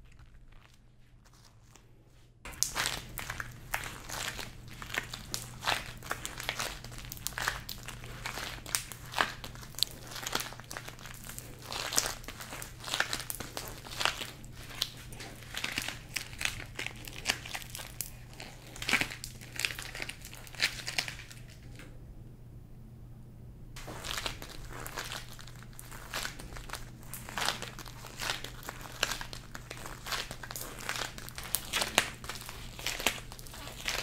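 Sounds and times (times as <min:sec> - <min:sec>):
sticky crackles of pulled sugar: 0:00.0 - 0:21.8, 0:23.8 - 0:34.0
low hum: 0:21.1 - 0:28.9.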